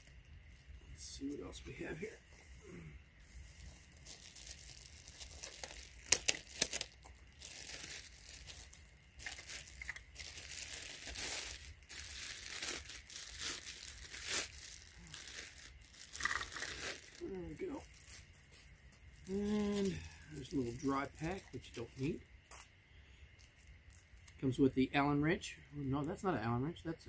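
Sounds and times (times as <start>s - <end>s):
plastic packaging crinkling: 2.8s - 22.2s, 23.4s - 24.4s
sharp plastic crackles: 3.3s - 22.7s.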